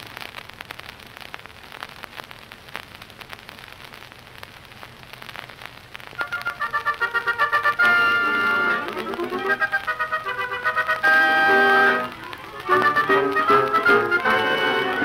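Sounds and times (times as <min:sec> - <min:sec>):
record crackle and clicks: 0:00.0 - 0:15.0
steady hiss: 0:00.0 - 0:15.0
music with short repeated notes: 0:06.2 - 0:15.0.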